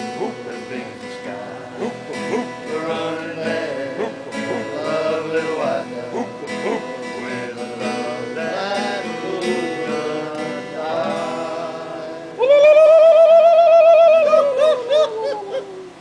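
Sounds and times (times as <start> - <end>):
acoustic guitar: 0.0 - 16.0
person singing: 0.0 - 16.0.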